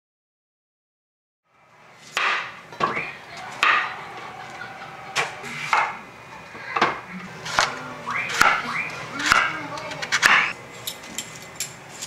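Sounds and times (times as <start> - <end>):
knife blade striking cutting board: 8.3 - 8.6, 10.1 - 10.5.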